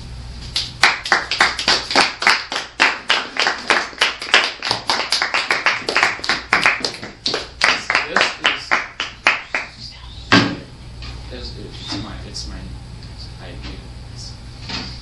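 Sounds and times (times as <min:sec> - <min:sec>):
hands clapping: 0:00.5 - 0:09.8.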